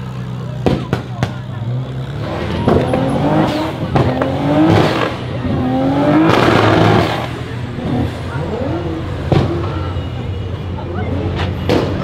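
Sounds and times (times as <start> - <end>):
engine revving: 0.9 - 9.7
car engine accelerating hard: 1.5 - 9.7.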